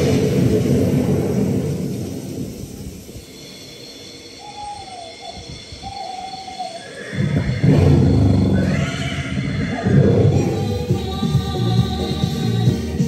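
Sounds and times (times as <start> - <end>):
wavering hoot-like call: 4.4 - 10.0
loud show music with low rumble: 7.6 - 13.0.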